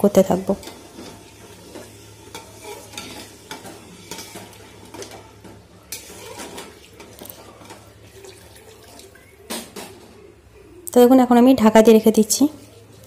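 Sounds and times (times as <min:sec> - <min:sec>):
metal ladle scraping a steel pot: 0:00.6 - 0:05.2, 0:05.9 - 0:07.9.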